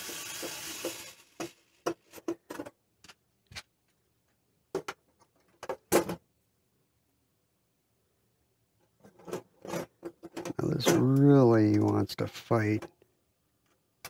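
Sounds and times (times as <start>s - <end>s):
power screwdriver driving screw: 0.0s - 1.6s.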